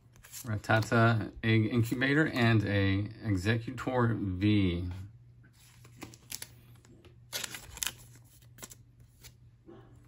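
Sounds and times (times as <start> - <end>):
trading cards rustling and tapping: 5.6 - 9.4.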